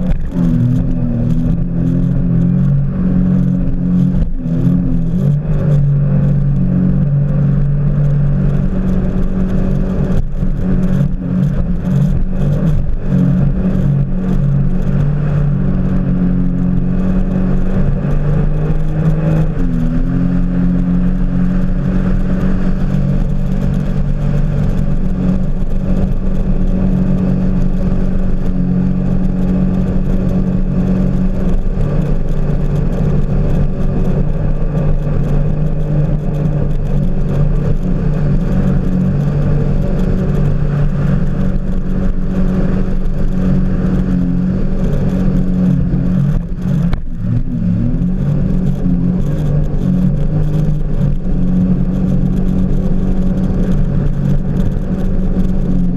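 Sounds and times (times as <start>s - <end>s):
jet ski engine running: 0.0s - 55.9s.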